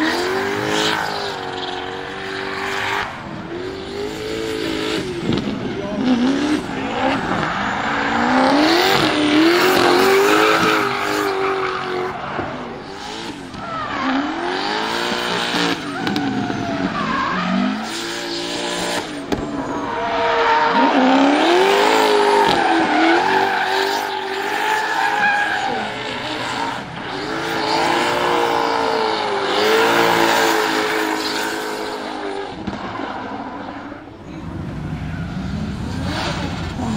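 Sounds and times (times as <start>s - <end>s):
car engine revving: 0.0s - 36.9s
tyres squealing: 19.5s - 29.0s.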